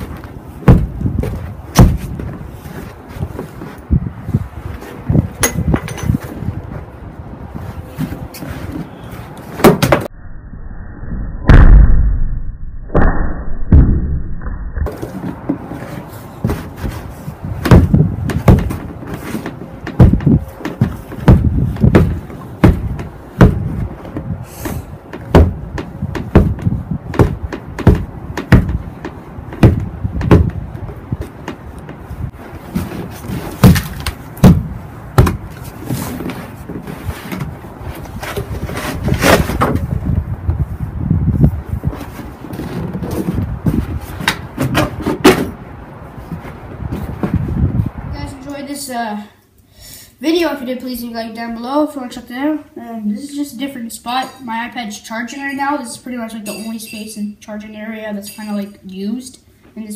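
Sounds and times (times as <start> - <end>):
boot stomping heavy thuds: 0.0 - 2.4, 16.4 - 36.0.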